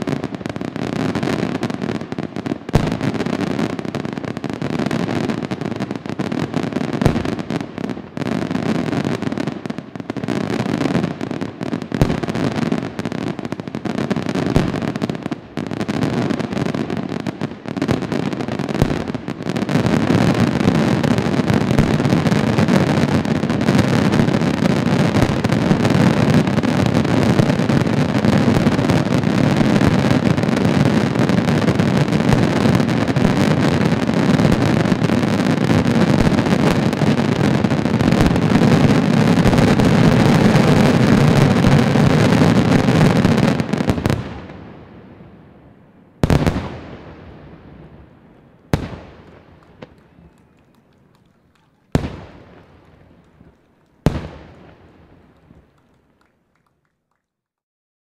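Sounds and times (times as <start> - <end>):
rapid fireworks barrage rumble: 0.0 - 56.2
fireworks bursting: 0.0 - 56.6.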